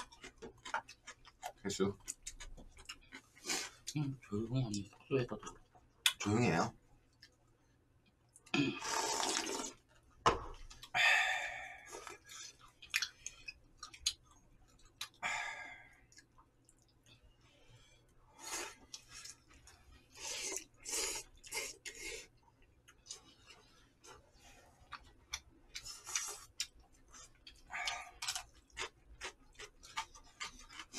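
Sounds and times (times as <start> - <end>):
chewing: 0.0 - 4.0, 11.8 - 17.3, 18.4 - 30.9
slurping soup and noodles: 8.8 - 9.9.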